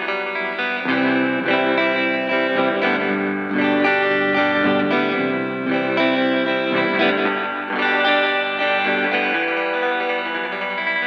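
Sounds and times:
electric guitar with delay and reverb: 0:00.0 - 0:11.0.

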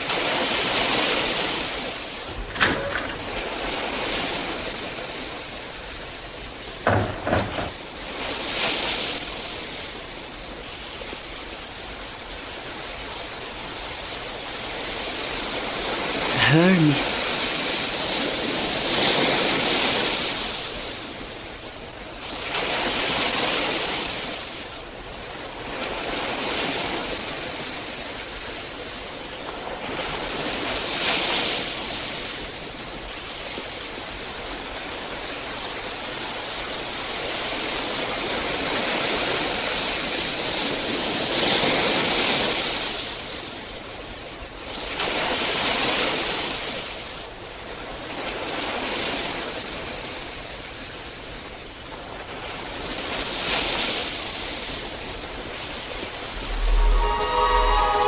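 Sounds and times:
ocean surf breaking: 0:55.2 - 0:58.0.

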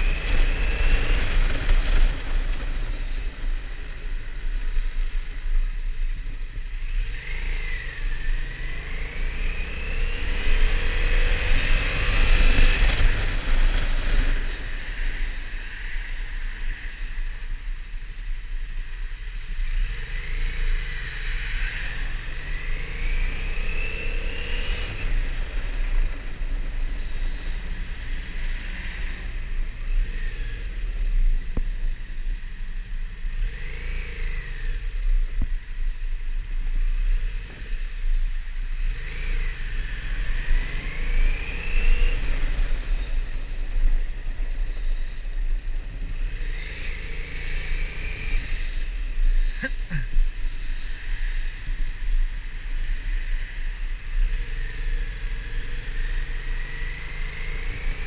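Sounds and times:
motorcycle engine revving: 0:06.8 - 0:15.8, 0:36.7 - 0:58.0.

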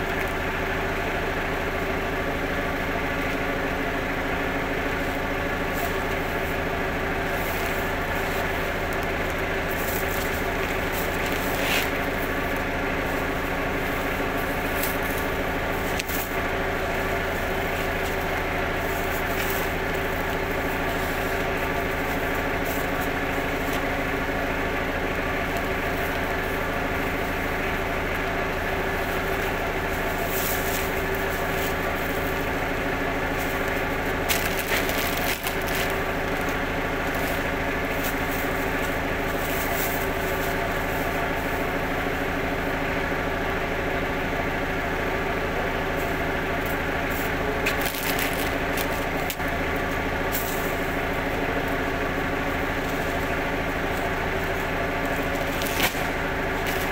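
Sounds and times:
steady machine hum: 0:00.0 - 0:56.9
sacks rustling and crinkling: 0:07.3 - 0:24.4, 0:28.8 - 0:41.5, 0:47.6 - 0:49.1, 0:54.5 - 0:56.9.

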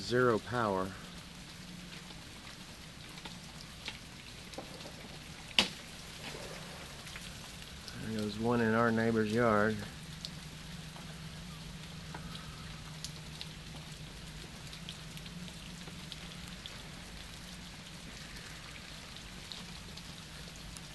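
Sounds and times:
freezing rain falling: 0:00.0 - 0:20.9
ice ticking and crackling: 0:00.0 - 0:20.9.

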